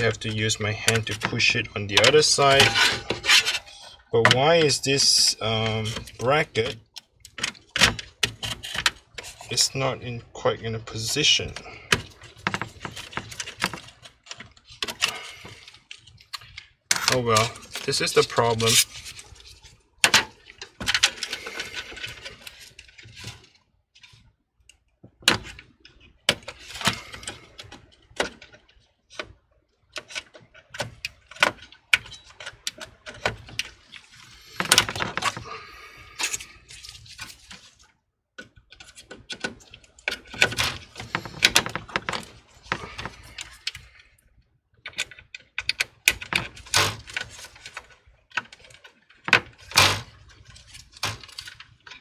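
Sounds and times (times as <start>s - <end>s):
computer parts clicking and knocking: 0.0s - 3.6s, 25.1s - 33.8s, 34.5s - 35.4s, 38.4s - 43.9s, 44.8s - 50.2s.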